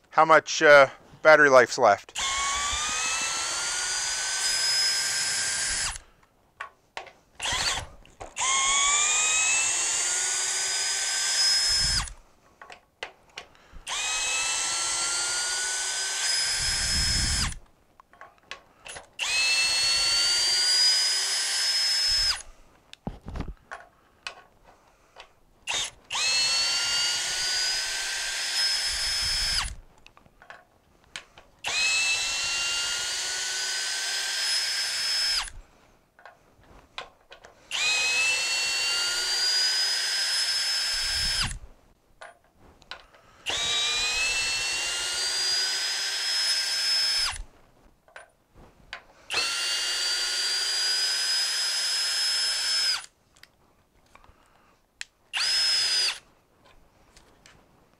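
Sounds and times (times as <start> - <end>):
cordless drill motor whine: 2.2 - 6.1, 7.4 - 12.2, 13.7 - 17.6, 18.9 - 22.5, 25.7 - 29.8, 31.6 - 35.6, 37.7 - 41.6, 43.4 - 47.5, 49.3 - 53.1, 55.4 - 56.3.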